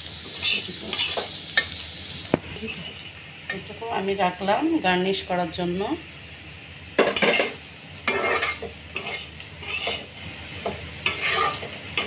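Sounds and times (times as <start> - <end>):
faint frying sizzle: 0.0 - 12.0
spatula scraping a pan: 0.2 - 1.8, 7.0 - 12.0.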